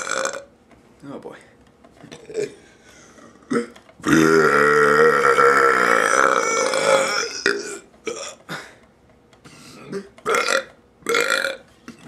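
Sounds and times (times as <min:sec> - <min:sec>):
man burping loudly: 0:00.0 - 0:00.5, 0:02.2 - 0:02.6, 0:03.4 - 0:08.5, 0:09.7 - 0:11.6.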